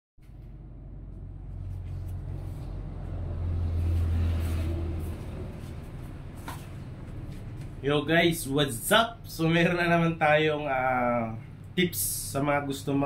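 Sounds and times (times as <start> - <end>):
vehicle engine passing by: 0.2 - 7.9.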